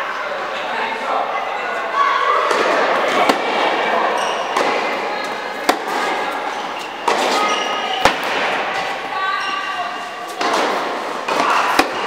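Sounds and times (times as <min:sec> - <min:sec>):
tennis ball bouncing: 0:02.5 - 0:09.7, 0:10.3 - 0:12.0
tennis racket hitting ball: 0:02.5 - 0:12.0.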